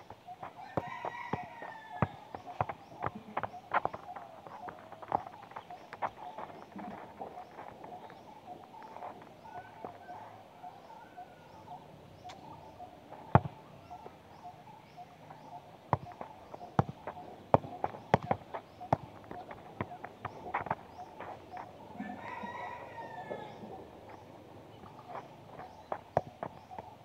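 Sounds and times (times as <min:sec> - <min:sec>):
football being kicked: 0:00.0 - 0:06.6, 0:13.3 - 0:13.6, 0:15.9 - 0:21.0, 0:25.9 - 0:26.8
birds calling: 0:00.0 - 0:27.0.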